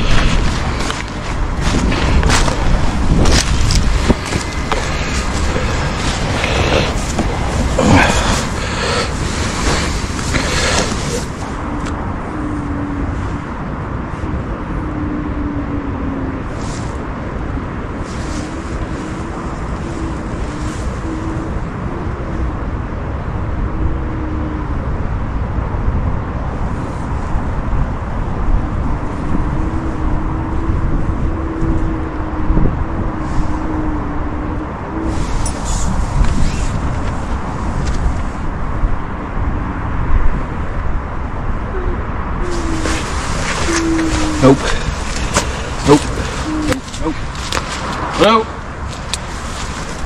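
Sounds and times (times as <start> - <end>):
rustling handling noise: 0.0 - 11.6, 42.4 - 50.0
steady low rumble: 0.0 - 50.0
thin wavering wail: 41.6 - 47.3.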